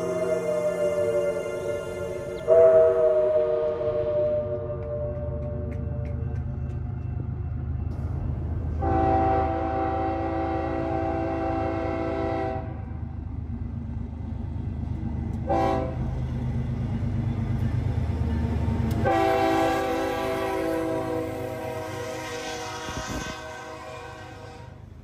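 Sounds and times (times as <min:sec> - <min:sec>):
train air horn blasts: 0:00.0 - 0:05.7, 0:08.8 - 0:13.0, 0:15.4 - 0:16.1, 0:19.0 - 0:25.0
locomotive low rumble: 0:00.0 - 0:25.0.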